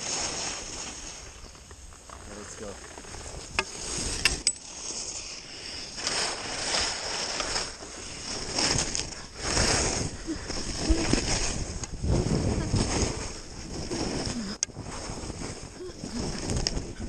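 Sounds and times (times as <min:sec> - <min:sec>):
skis scraping over snow: 0:00.0 - 0:17.0.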